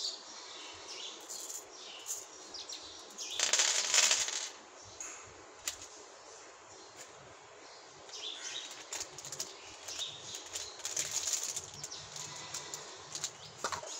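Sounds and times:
plastic wrapper crinkling: 8.6 - 13.9.

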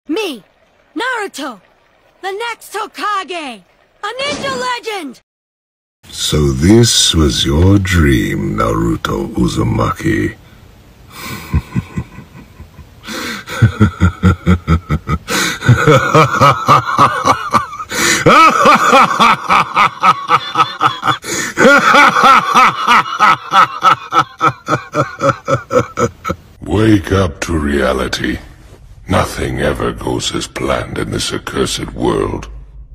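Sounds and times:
man laughing: 11.1 - 26.4.

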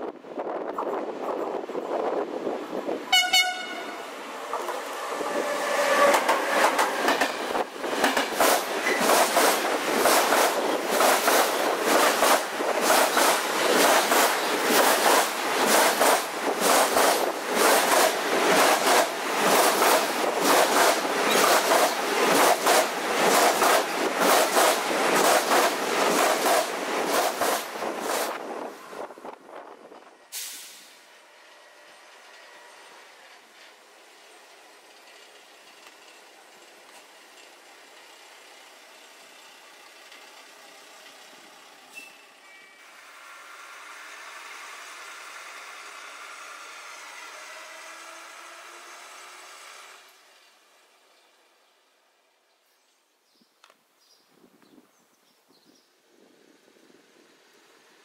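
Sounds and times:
train horn blast: 3.1 - 4.2
train wheels clattering: 4.5 - 28.3.

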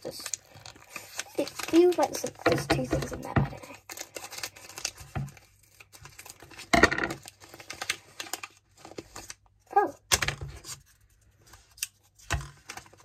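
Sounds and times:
scissors cutting plastic: 0.0 - 5.4
plastic wrapper crinkling: 0.0 - 10.0.

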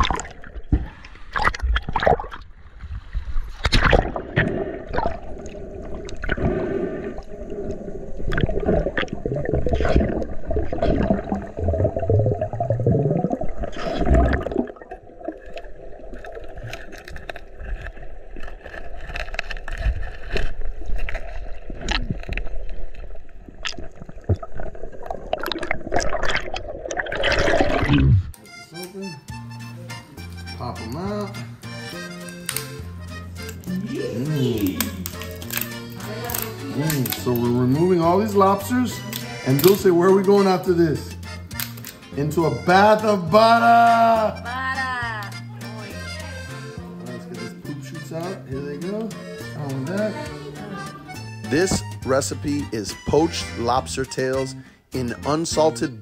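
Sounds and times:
underwater gurgling and sloshing: 0.0 - 28.4.

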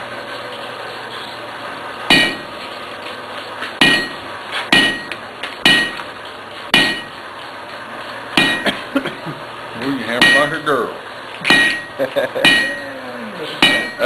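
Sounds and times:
hammer striking iron on anvil: 2.1 - 2.5, 3.8 - 6.0, 6.7 - 7.1, 8.4 - 8.8, 10.2 - 10.6, 11.4 - 12.9, 13.6 - 14.0.

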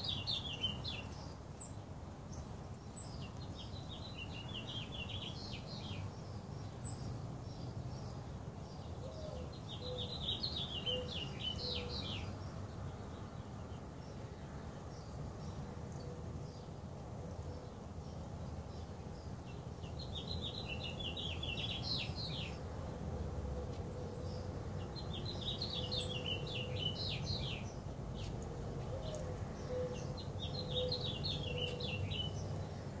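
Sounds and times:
songbird chirping: 0.0 - 33.0.

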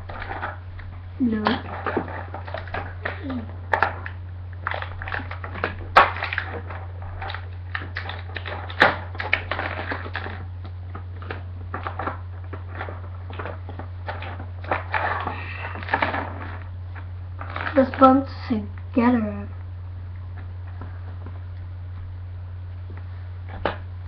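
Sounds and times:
plastic packaging crinkling: 0.0 - 18.2
steady low hum: 0.0 - 24.0.

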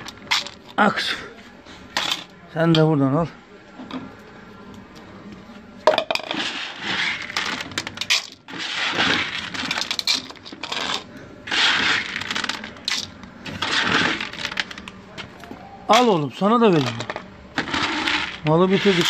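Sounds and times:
pellets rattling into plastic bowls: 6.0 - 14.9, 15.9 - 19.0.

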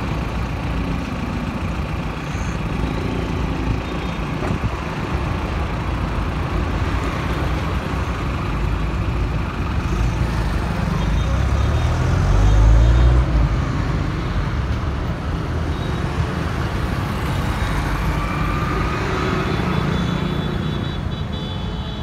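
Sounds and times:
pickup engine and tyres rumbling: 0.0 - 14.0
steady traffic hum: 0.0 - 22.0.

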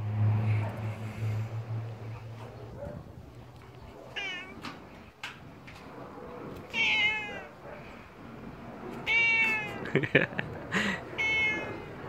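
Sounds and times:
cat meowing: 4.1 - 4.6, 6.7 - 7.6, 9.0 - 9.8, 11.2 - 12.0.

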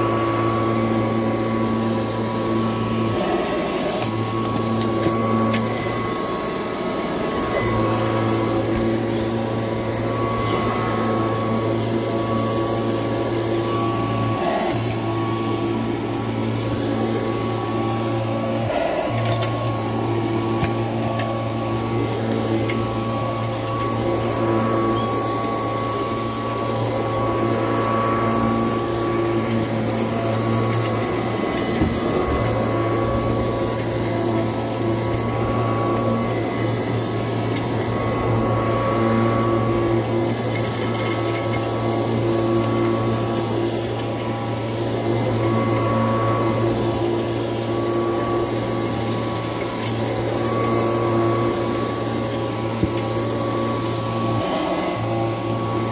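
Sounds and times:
upright vacuum cleaner running: 0.0 - 55.9.

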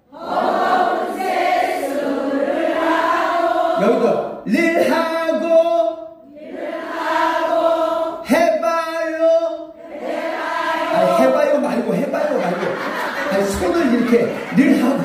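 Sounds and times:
group singing in unison: 0.0 - 4.5, 6.2 - 8.3, 9.8 - 15.0.

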